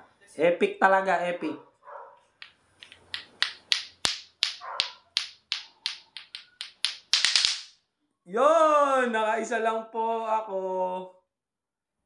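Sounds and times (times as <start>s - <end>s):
plastic clacker balls knocking: 2.4s - 7.8s.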